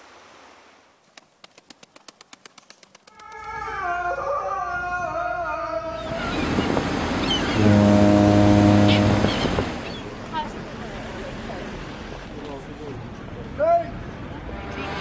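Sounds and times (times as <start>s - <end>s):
rushing harbour water: 0.0s - 1.2s, 6.0s - 14.3s
low ferry horn blast: 7.5s - 9.8s.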